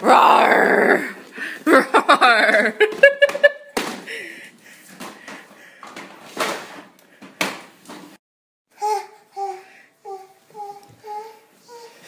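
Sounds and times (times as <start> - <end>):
toddler babbling: 8.8 - 12.0.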